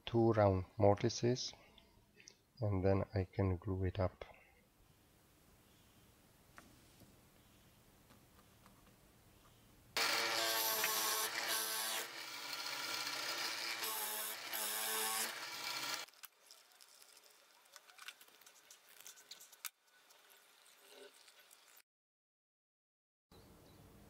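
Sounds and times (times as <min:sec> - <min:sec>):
electric drill boring into wood: 0:10.0 - 0:16.1.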